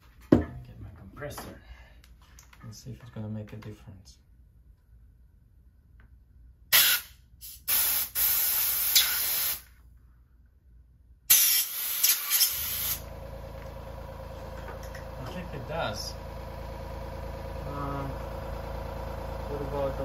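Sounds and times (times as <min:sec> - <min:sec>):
compressed air blasts hissing: 0:06.7 - 0:09.7, 0:11.3 - 0:13.1
compressor motor humming: 0:12.0 - 0:20.0.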